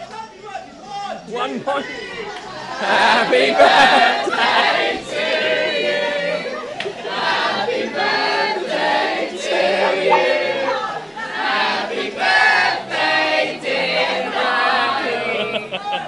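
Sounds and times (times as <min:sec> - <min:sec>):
excited voices: 0:00.1 - 0:16.0
group singing a celebration song: 0:01.4 - 0:16.0
people laughing: 0:01.4 - 0:16.0.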